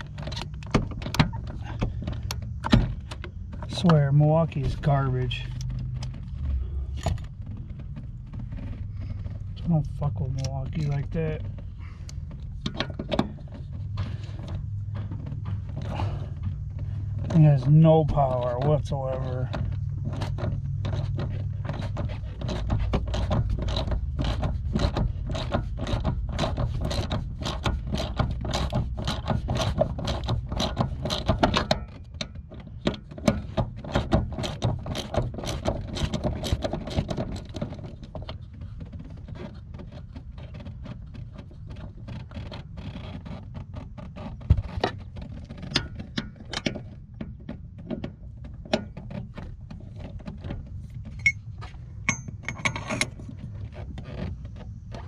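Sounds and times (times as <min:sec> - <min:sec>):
low handling rumble: 0:00.0 - 0:31.3, 0:31.9 - 0:55.0.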